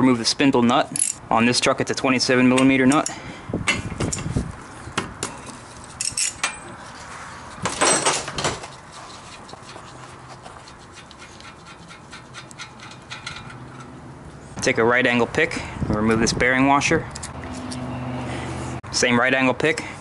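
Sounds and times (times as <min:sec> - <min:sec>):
metal clinks: 0:06.0 - 0:06.7.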